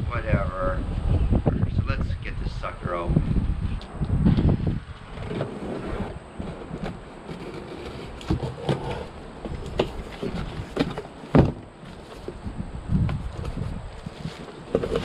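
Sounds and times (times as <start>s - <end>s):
cardboard scraping and crackling: 5.0s - 15.0s.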